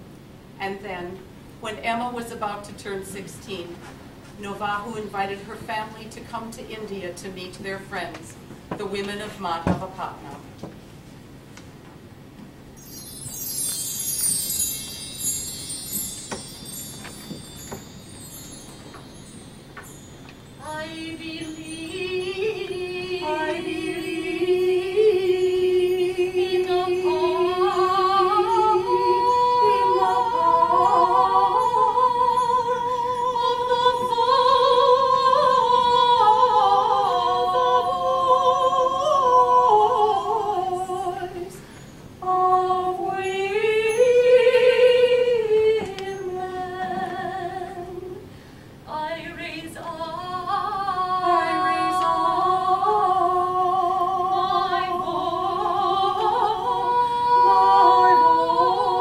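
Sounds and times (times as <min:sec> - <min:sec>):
women's choir singing: 0:20.6 - 0:41.6, 0:42.2 - 0:48.2, 0:48.9 - 0:59.0.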